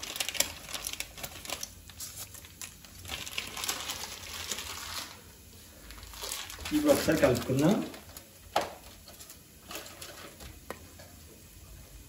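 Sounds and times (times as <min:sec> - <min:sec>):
spices crackling in hot oil: 0:00.0 - 0:12.0.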